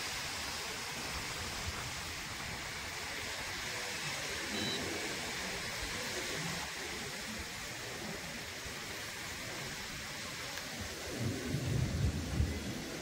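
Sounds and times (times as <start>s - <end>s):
even hiss: 0.0s - 13.0s
faint high beep: 4.5s - 5.0s.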